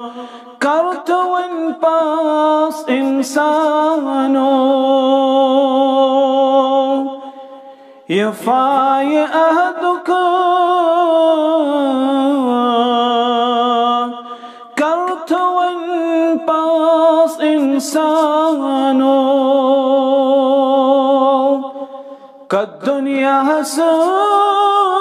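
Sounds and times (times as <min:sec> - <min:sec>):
man breathing in: 0:00.0 - 0:00.6, 0:07.2 - 0:08.1, 0:14.2 - 0:14.8, 0:21.7 - 0:22.5
man singing unaccompanied: 0:00.0 - 0:25.0.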